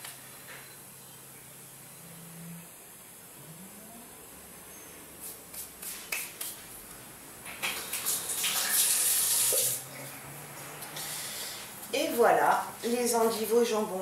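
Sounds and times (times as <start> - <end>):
kitchen tap running: 7.4 - 10.0.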